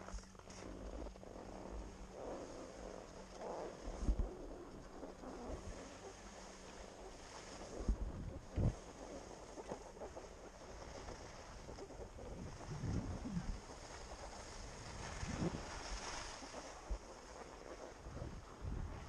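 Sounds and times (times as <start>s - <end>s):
steady hiss: 0.0s - 19.0s
wind buffeting microphone: 7.8s - 8.9s, 10.8s - 17.1s, 17.9s - 19.0s.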